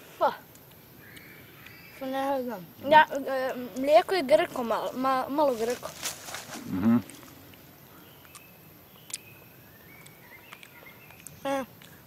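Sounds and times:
boy making wordless sounds: 0.1 - 0.5, 2.0 - 7.2, 11.4 - 11.8.

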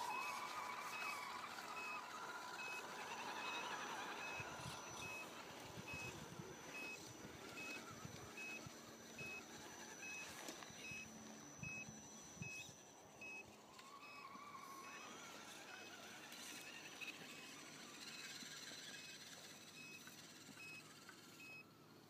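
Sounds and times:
short high electronic beeps: 0.0 - 5.3, 8.4 - 13.4.

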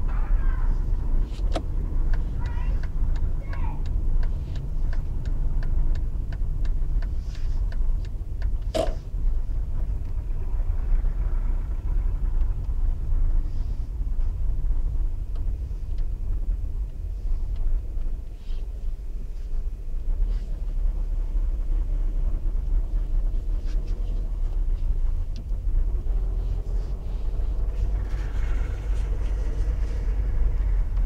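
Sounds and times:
bus diesel engine rumbling: 0.0 - 31.0
regular ticking: 0.9 - 10.2, 13.9 - 28.0.

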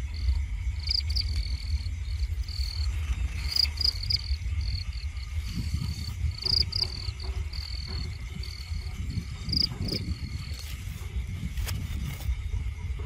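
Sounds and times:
insects trilling: 0.0 - 13.0
low rumble: 0.0 - 13.0
leaves rustling: 9.7 - 12.4.

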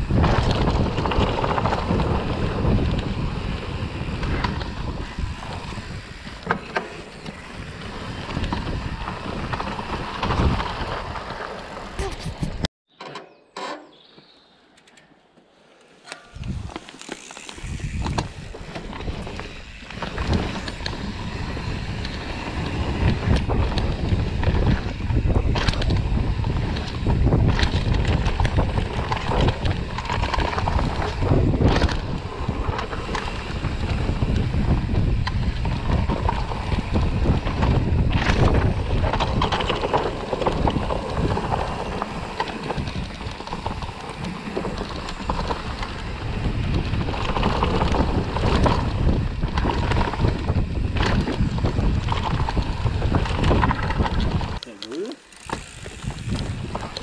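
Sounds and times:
wind on microphone: 0.0 - 12.7, 16.3 - 57.0
bike rumbling and rattling: 0.0 - 15.1, 15.8 - 57.0.

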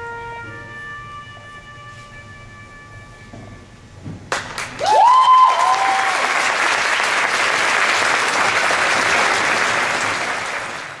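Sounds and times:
audience applauding and cheering: 4.3 - 11.0.

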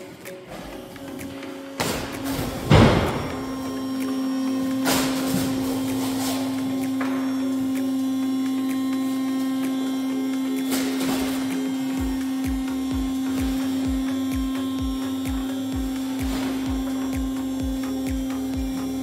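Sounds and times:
hydraulic power unit humming: 0.0 - 19.0
hydraulic unit starting thump: 1.8 - 3.7.

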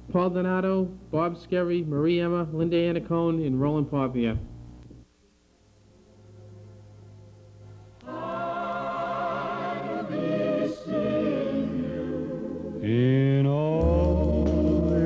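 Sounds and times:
faint hum: 0.0 - 15.0
voices singing held notes: 8.0 - 15.0
low bass line: 13.0 - 15.0.

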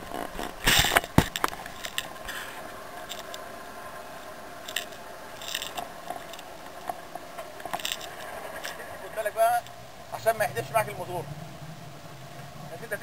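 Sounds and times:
clicks and rattles from boat gear: 0.0 - 2.4, 3.0 - 3.4, 4.6 - 9.8
outboard engine running: 0.0 - 13.0.

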